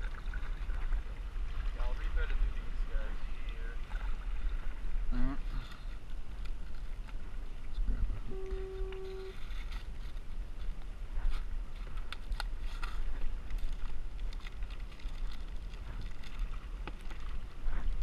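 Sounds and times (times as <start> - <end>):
small ticks and splashes: 0.0 - 5.0, 11.7 - 18.0
wind buffeting microphone: 0.0 - 18.0.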